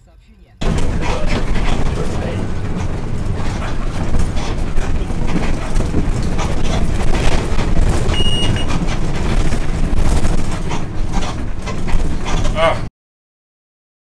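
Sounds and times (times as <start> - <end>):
bus engine and road rumble: 0.0 - 12.9
knocks and rattles: 0.6 - 12.9
short high beep: 8.2 - 8.7.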